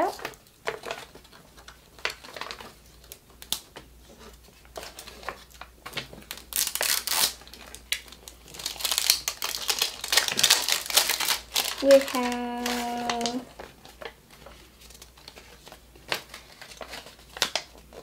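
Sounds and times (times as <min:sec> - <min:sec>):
packaging crinkling: 0:00.0 - 0:03.8, 0:04.6 - 0:18.0.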